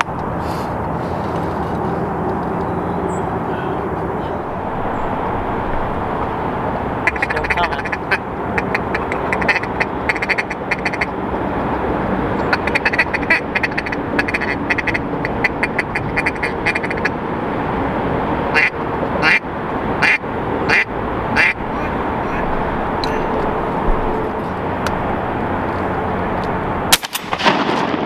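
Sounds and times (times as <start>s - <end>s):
steady background rush: 0.0s - 28.0s
duck quacking: 7.0s - 11.1s, 12.5s - 17.1s, 18.5s - 19.4s, 20.0s - 23.6s.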